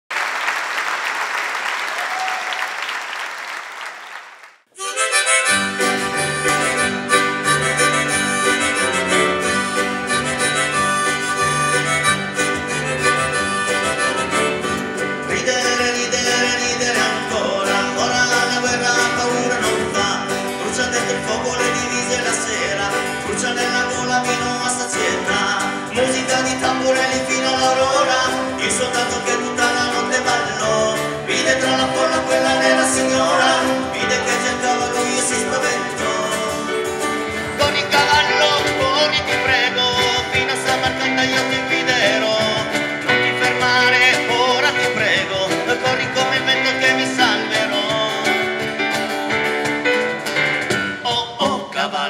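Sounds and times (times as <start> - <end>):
applause: 0.1 - 4.7
acoustic guitar: 4.8 - 52.0
cajon beat: 4.8 - 52.0
piano: 5.0 - 52.0.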